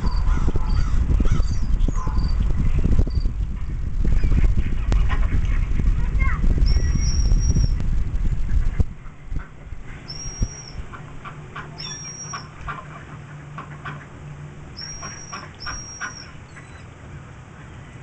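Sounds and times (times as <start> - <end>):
steady low hum: 0.0 - 18.0
ducks quacking: 4.1 - 6.0, 8.5 - 16.8
high whistled bird calls: 6.6 - 7.8, 10.0 - 10.8, 11.8 - 12.5, 14.8 - 16.9.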